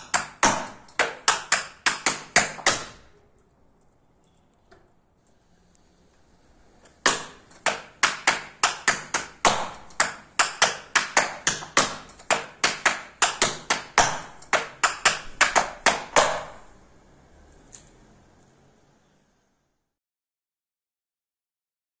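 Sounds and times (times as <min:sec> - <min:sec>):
tap shoes on a tap board: 0:00.0 - 0:03.0, 0:06.9 - 0:16.6.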